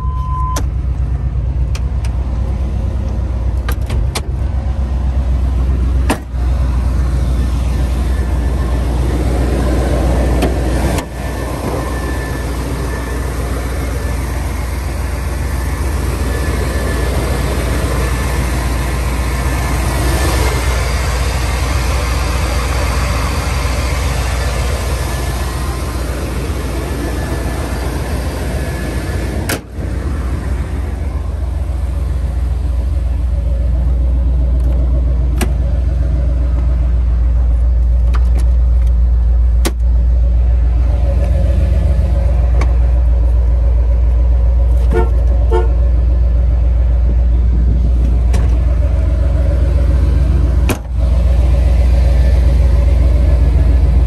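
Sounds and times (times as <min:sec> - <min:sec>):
pickup truck engine running: 0:00.6 - 0:54.0.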